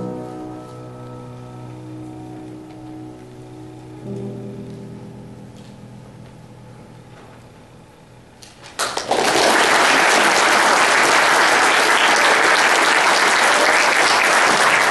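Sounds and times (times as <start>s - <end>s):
grand piano chord: 0.0s - 8.4s
audience applause: 8.6s - 14.9s.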